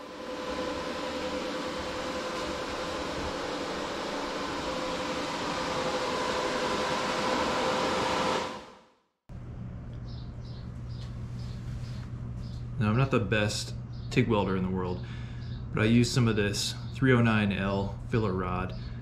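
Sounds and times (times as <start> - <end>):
whirring machine: 0.0 - 8.8
low electrical hum: 9.3 - 19.0.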